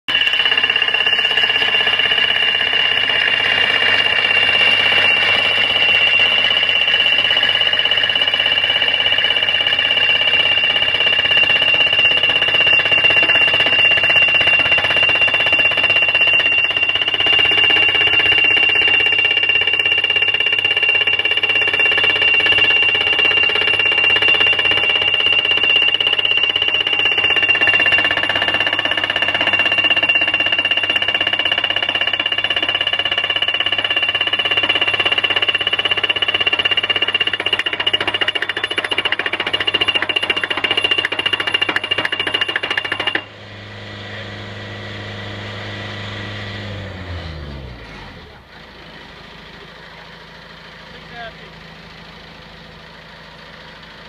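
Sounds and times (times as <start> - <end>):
pile driver hammer blows: 0.1 - 43.3
engine running: 0.2 - 54.0
high-pitched ringing tone: 3.4 - 35.6.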